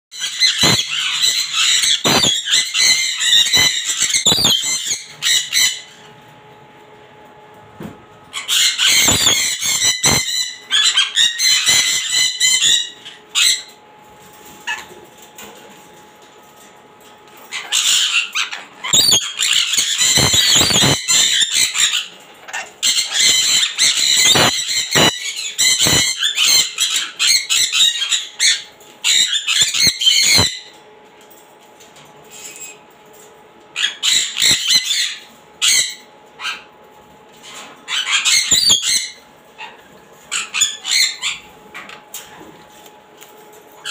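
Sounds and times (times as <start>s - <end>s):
parrots screeching: 0.2s - 6.1s, 8.3s - 13.8s, 14.5s - 15.0s, 17.4s - 30.8s, 32.3s - 32.8s, 33.7s - 36.7s, 37.4s - 42.3s.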